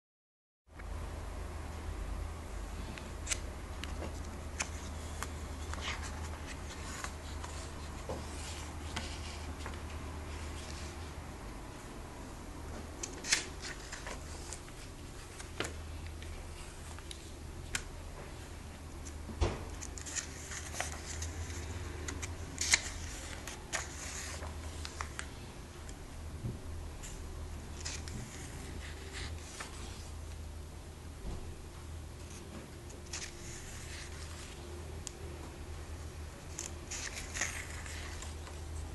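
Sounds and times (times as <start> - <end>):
steady low hum: 0.8 - 38.9
comic book pages turning: 3.2 - 10.9, 13.0 - 17.8, 19.8 - 25.3, 27.8 - 30.2, 33.0 - 34.6, 36.5 - 38.9
glossy paper rustling: 3.2 - 11.1, 13.0 - 17.8, 19.8 - 25.4, 27.0 - 30.4, 32.2 - 35.2, 36.3 - 38.9.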